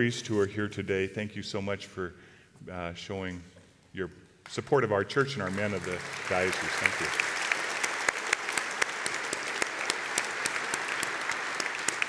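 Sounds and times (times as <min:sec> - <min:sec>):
close sharp clapping: 0:04.4 - 0:12.0
audience applauding: 0:05.1 - 0:12.0.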